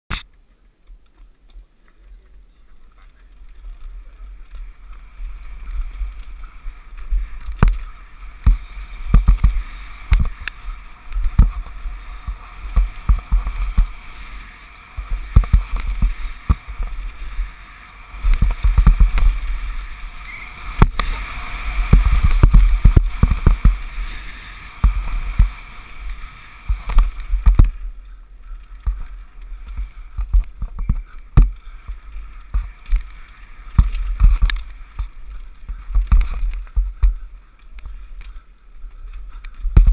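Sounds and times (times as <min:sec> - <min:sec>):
tyres running over dirt: 0:00.1 - 0:39.9
wind buffeting microphone: 0:01.6 - 0:39.9
bike knocks and rattles: 0:03.1 - 0:14.2, 0:14.9 - 0:17.4, 0:18.2 - 0:25.9, 0:28.7 - 0:37.2, 0:39.2 - 0:39.9.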